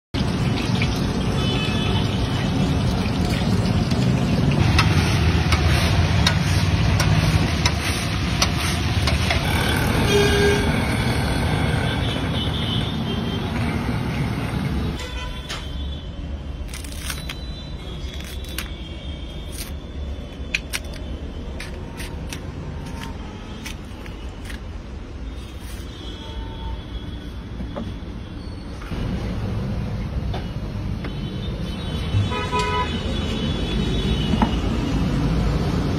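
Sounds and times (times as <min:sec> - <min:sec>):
slices sizzling in hot oil: 0:00.2 - 0:09.5
vehicle horn tooting: 0:09.8 - 0:13.5, 0:32.2 - 0:34.4
clicks and snaps of peeling: 0:18.1 - 0:18.8, 0:20.5 - 0:24.7.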